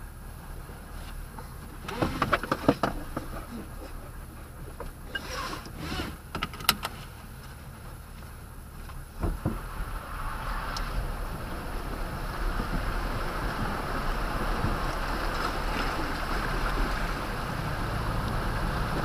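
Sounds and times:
dull thumps: 8.9 - 9.8.

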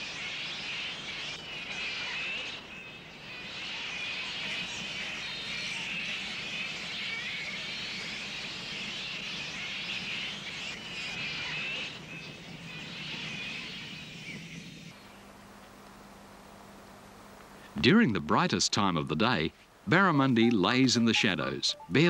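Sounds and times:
flying foxes shrieking: 0.0 - 15.1.

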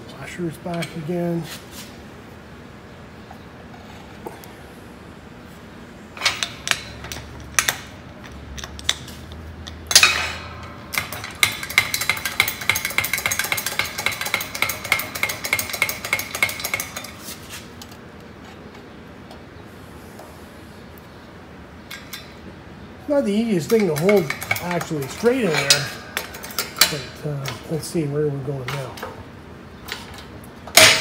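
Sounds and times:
sharp ringing metal clank: 9.9 - 16.9, 30.7 - 31.0
rapid metallic clicking: 9.9 - 17.2.

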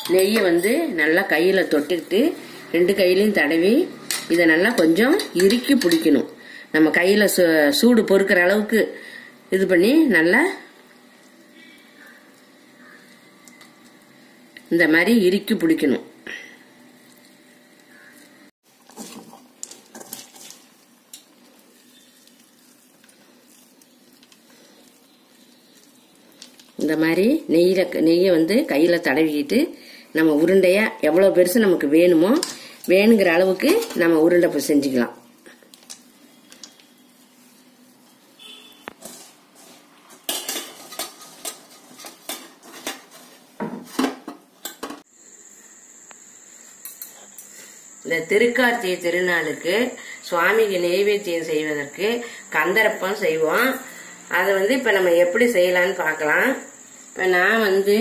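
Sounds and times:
metal utensils clinking: 0.0 - 0.8
puffed rice rustling and crackling: 18.7 - 27.0
faint hiss: 45.1 - 58.0
thin high whine: 45.1 - 58.0.

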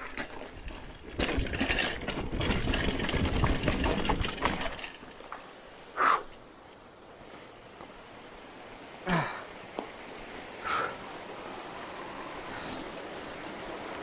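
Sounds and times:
mountain bike rattling over trail: 0.0 - 5.8.

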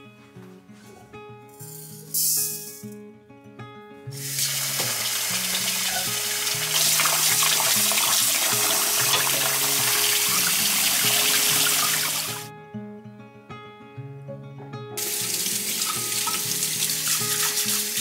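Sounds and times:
soft background music: 0.0 - 18.0
tap water pouring onto rice: 4.2 - 12.4.

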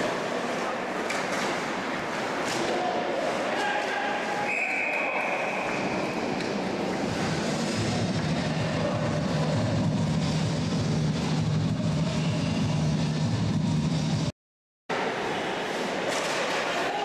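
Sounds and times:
noisy rumble: 6.1 - 14.3
steady low drone: 6.9 - 14.3.

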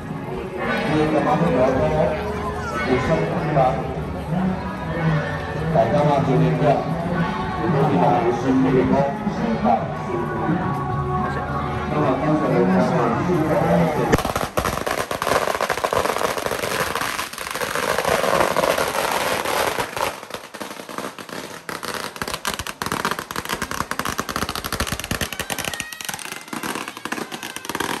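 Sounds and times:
firecrackers crackling: 14.0 - 28.0.

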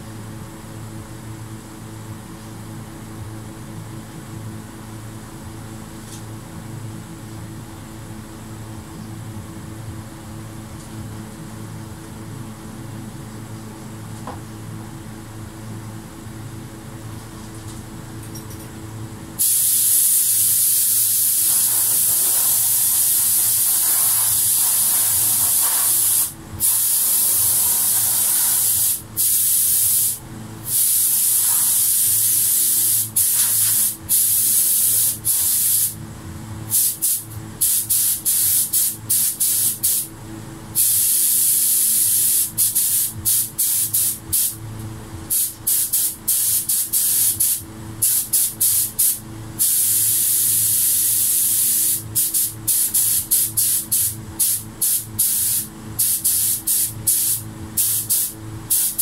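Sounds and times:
spray gun hissing: 19.4 - 36.0, 36.7 - 40.1, 40.8 - 44.6, 45.3 - 59.0.

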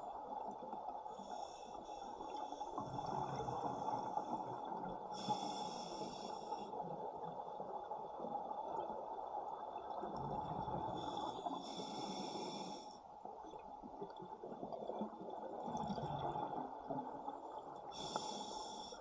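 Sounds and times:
hissing regulator inhale: 5.2 - 6.7, 11.0 - 13.0, 18.0 - 19.0
rumble of exhaled bubbles: 9.5 - 11.4, 13.6 - 17.9.

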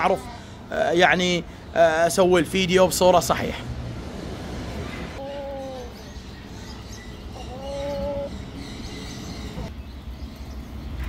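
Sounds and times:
bird calling low notes: 7.2 - 9.7.

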